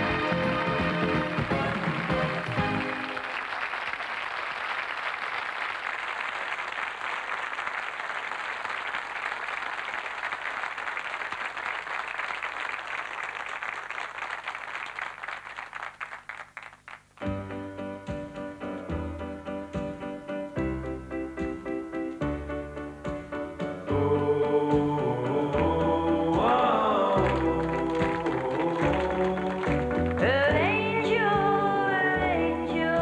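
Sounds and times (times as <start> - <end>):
music: 0.0 - 3.5, 17.2 - 33.0
audience applauding: 0.0 - 17.4, 25.5 - 30.8.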